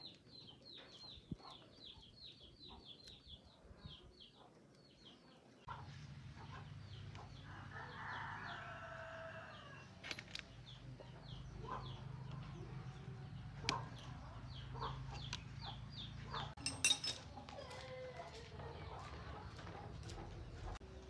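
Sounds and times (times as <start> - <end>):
rooster crowing: 7.4 - 9.8
chicks cheeping: 10.6 - 16.6.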